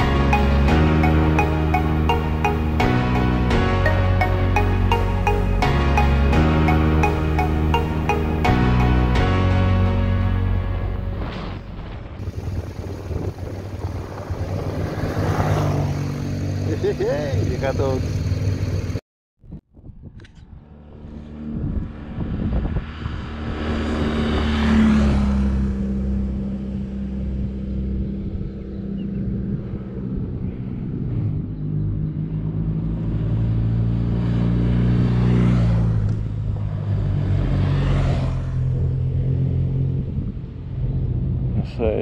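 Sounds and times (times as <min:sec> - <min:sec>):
tyre and wind noise: 0:11.2 - 0:15.7, 0:19.4 - 0:24.6, 0:39.8 - 0:42.0
motorcycles passing by: 0:12.2 - 0:19.0, 0:20.6 - 0:42.0.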